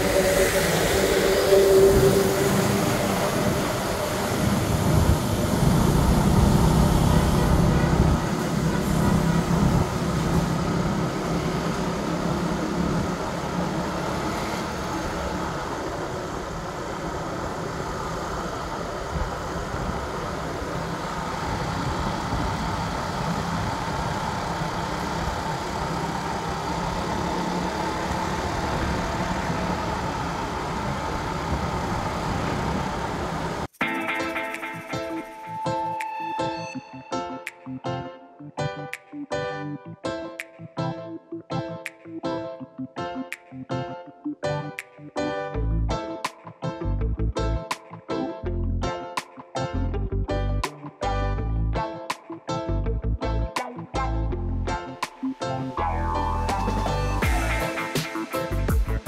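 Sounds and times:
truck passing rumble: 0:00.0 - 0:33.7
wind and road noise: 0:00.0 - 0:33.8
motorbike engine running: 0:14.8 - 0:33.6.

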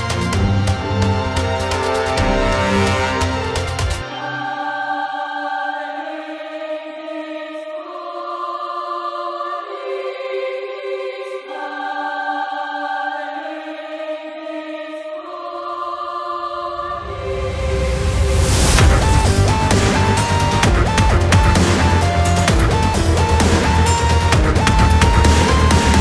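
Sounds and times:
slow sustained chords: 0:00.4 - 0:05.3
low bass: 0:17.1 - 0:26.0.

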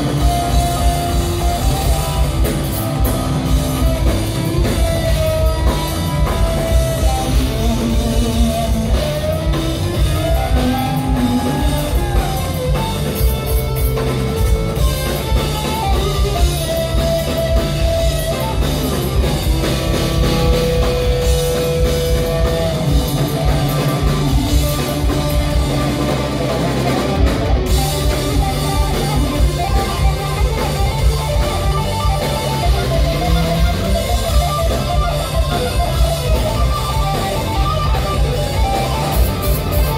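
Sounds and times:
bass guitar: 0:00.0 - 0:39.9
drum kit: 0:00.0 - 0:39.9
electric guitar: 0:00.0 - 0:39.9.

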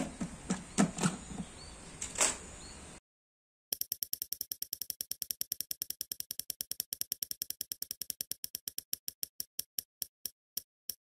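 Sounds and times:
prize wheel ticking: 0:03.8 - 0:11.0.

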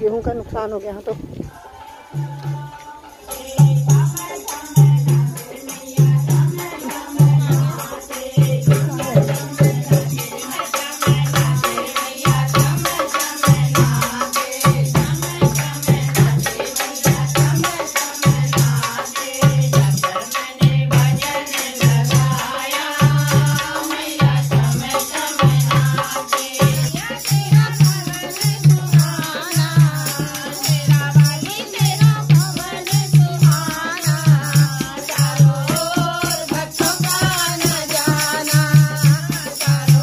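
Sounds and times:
women singing: 0:01.4 - 0:40.0
hand drum beating: 0:02.1 - 0:40.0.

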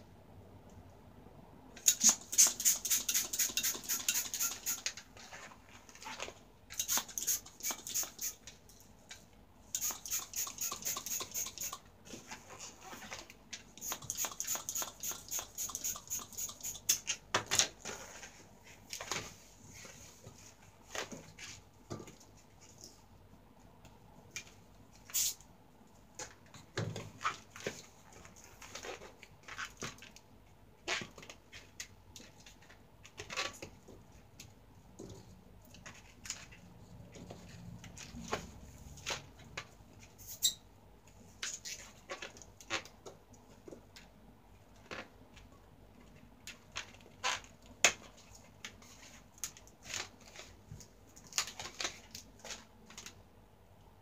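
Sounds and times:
balloon squeaking: 0:01.8 - 0:04.9, 0:06.8 - 0:08.4, 0:09.7 - 0:11.8, 0:13.8 - 0:17.1
hand pump air noise: 0:01.8 - 0:04.9, 0:06.8 - 0:08.4, 0:09.7 - 0:11.8, 0:13.8 - 0:17.1.

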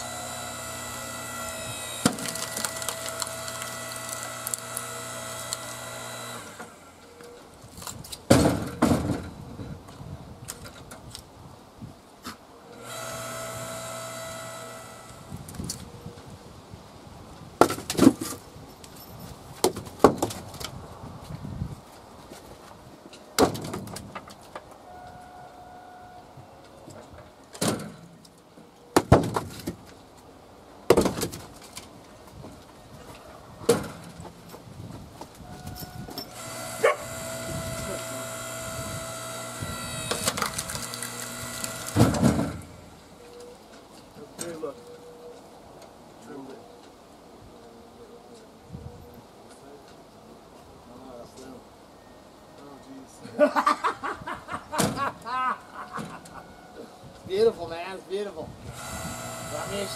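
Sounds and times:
log splitter whine: 0:00.0 - 0:07.1, 0:12.8 - 0:15.9, 0:36.3 - 0:43.0, 0:58.7 - 0:59.9
wooden knocks of firewood dropped: 0:08.3 - 0:09.4, 0:17.6 - 0:18.4, 0:19.6 - 0:20.8, 0:23.4 - 0:24.4, 0:29.0 - 0:29.9, 0:30.9 - 0:31.8, 0:41.9 - 0:42.7.

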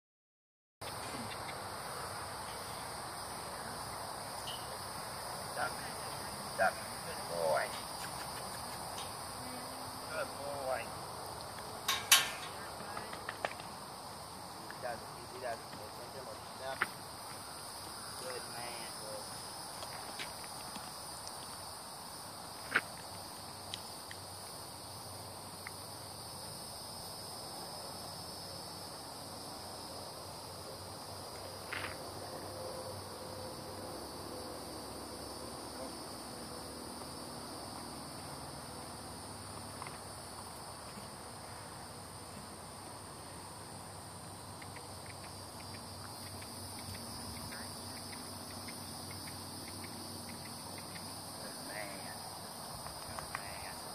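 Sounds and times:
insects chirping chorus: 0:00.8 - 0:53.9
sharp clicks: 0:44.6 - 0:51.1.

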